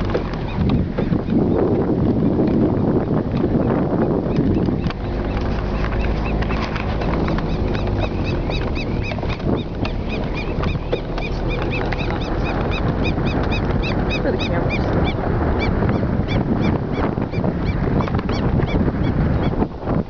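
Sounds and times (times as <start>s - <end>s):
vehicle low rumble: 0.0s - 20.0s
high chirping squeaks: 5.2s - 18.5s.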